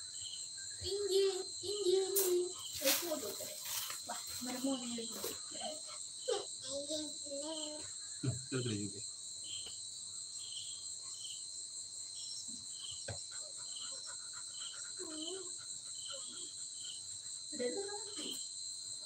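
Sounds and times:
crickets chirring: 0:00.0 - 0:19.0.

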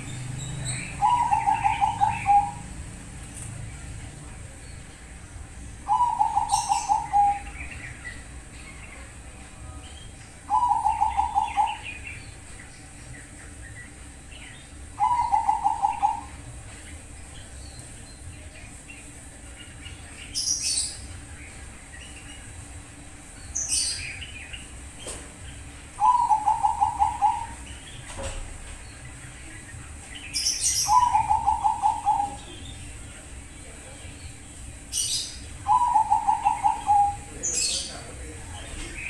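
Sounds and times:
high bird chirps: 0:00.0 - 0:02.8, 0:05.8 - 0:09.0, 0:09.8 - 0:19.2, 0:23.4 - 0:28.2, 0:28.9 - 0:33.0
dove singing trilled phrases: 0:00.0 - 0:39.0.

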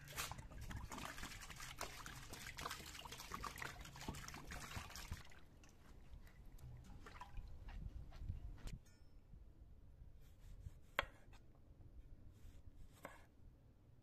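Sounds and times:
water pouring into metal basin: 0:00.0 - 0:05.4.

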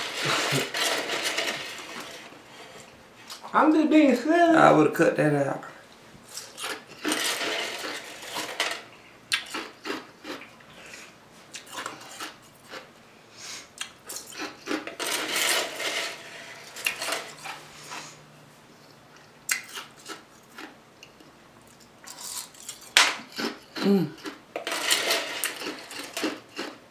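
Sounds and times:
rustling or crunching: 0:00.0 - 0:03.4, 0:06.3 - 0:10.4, 0:22.1 - 0:26.8
tableware clicking and clinking: 0:07.0 - 0:08.9, 0:24.6 - 0:26.6.

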